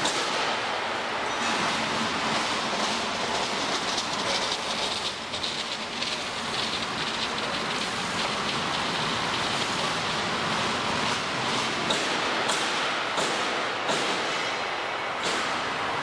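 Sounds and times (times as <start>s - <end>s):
turntable rolling rumble and rattle: 1.3s - 11.9s.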